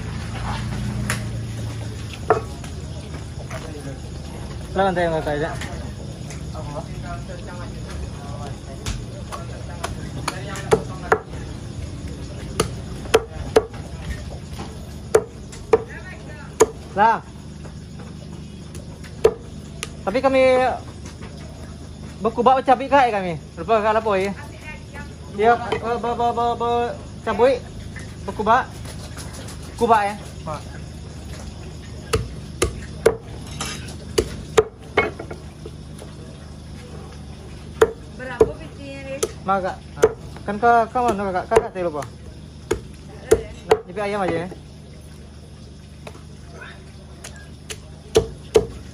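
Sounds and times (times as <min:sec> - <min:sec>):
cleaver chopping on wooden block: 0:09.8 - 0:11.4, 0:12.6 - 0:13.8, 0:15.1 - 0:15.9, 0:19.2 - 0:19.5, 0:32.1 - 0:33.3, 0:34.1 - 0:35.3, 0:37.8 - 0:38.6, 0:40.0 - 0:40.2, 0:42.7 - 0:44.4, 0:47.7 - 0:48.8.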